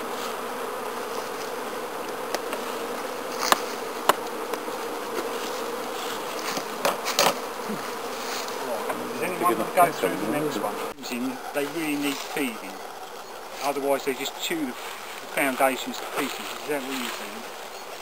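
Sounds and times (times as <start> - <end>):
honeybees buzzing: 0.0 - 18.0
hive tool knocking on wood: 0.8 - 8.0.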